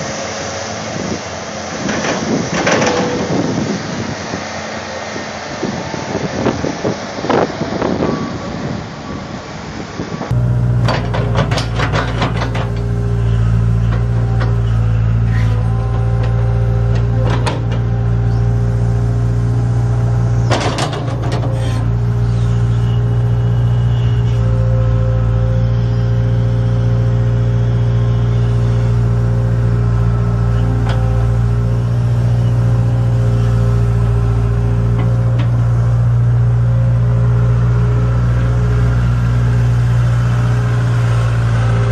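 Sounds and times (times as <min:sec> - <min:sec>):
excavator diesel engine running: 0:00.0 - 0:41.9
wind buffeting microphone: 0:00.8 - 0:10.4
metal clanks: 0:10.8 - 0:12.9.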